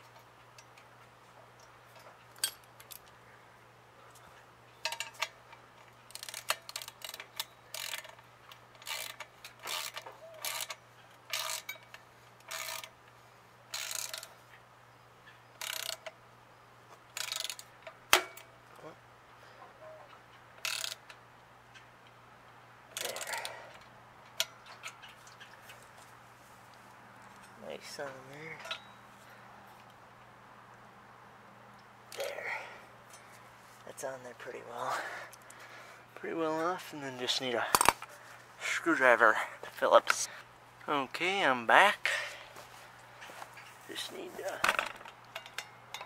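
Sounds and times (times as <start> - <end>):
wrench turning on metal nut: 6.1 - 13.0, 13.7 - 14.3, 17.2 - 17.8, 20.6 - 21.1.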